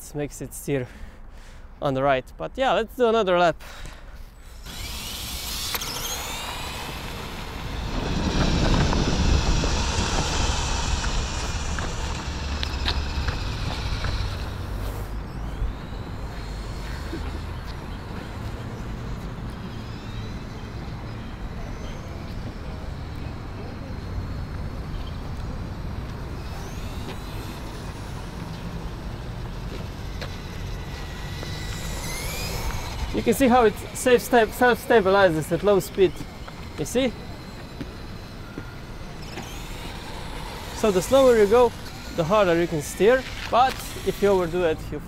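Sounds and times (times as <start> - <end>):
high-pitched electric motor whine: 4.2 - 45.0
low rumble: 6.4 - 15.3.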